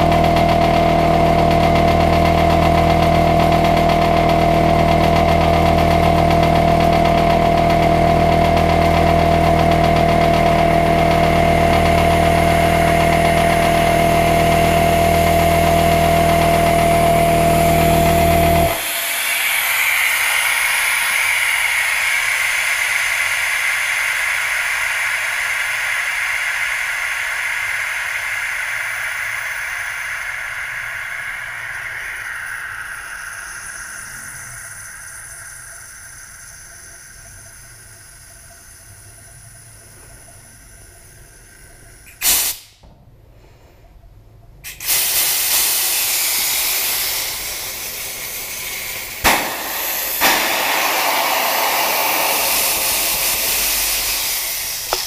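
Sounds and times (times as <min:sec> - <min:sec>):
compressed air hissing: 0:00.0 - 0:42.8, 0:44.6 - 0:55.0
compressor running: 0:00.0 - 0:42.9, 0:44.6 - 0:55.0
short sharp burst: 0:44.7 - 0:55.0.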